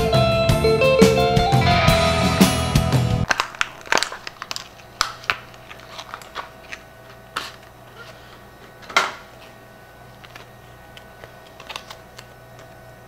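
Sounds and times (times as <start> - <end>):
guitar music: 0.0 - 3.3
light crinkling: 3.3 - 8.4.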